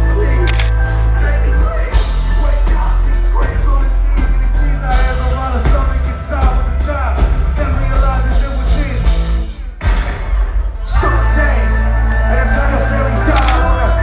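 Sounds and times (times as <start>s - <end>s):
loud bass-heavy music: 0.0s - 14.0s.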